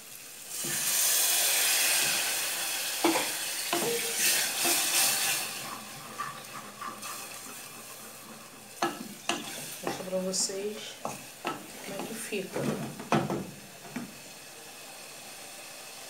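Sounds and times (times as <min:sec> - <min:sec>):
sauce sizzling: 0:00.0 - 0:16.0
wooden spoon knocking pan: 0:03.0 - 0:04.9, 0:06.2 - 0:14.2.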